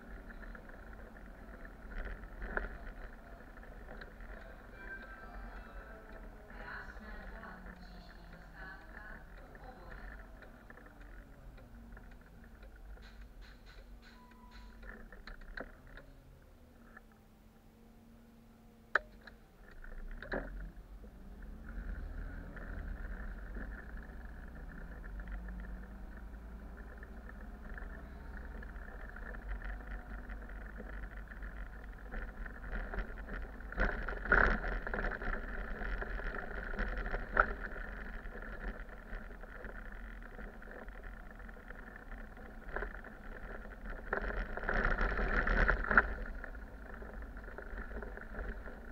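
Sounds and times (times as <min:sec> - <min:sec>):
bus engine and road noise: 0:00.0 - 0:48.9
knocks and rattles: 0:09.8 - 0:16.0.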